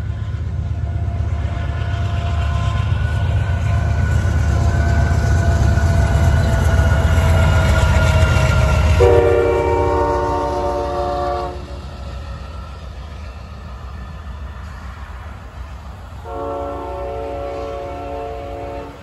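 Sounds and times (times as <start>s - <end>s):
diesel train passing: 0.0s - 19.0s
locomotive horn: 8.8s - 11.8s, 16.2s - 19.0s.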